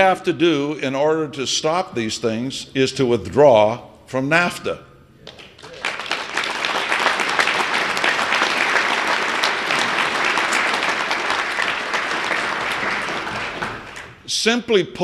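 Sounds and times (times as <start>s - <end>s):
audience applauding: 5.3s - 14.2s.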